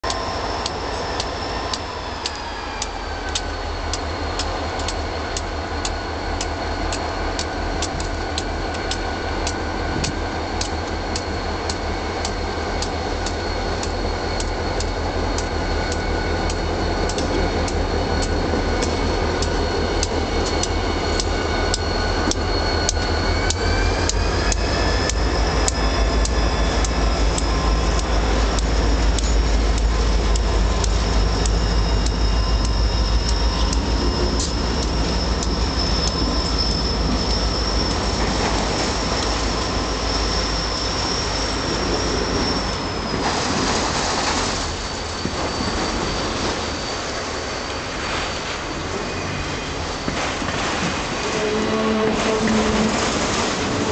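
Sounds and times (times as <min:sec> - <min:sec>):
steady ticking: 0:00.0 - 0:41.4
diesel locomotives rumbling: 0:00.0 - 0:53.9
high whine: 0:00.0 - 0:53.9.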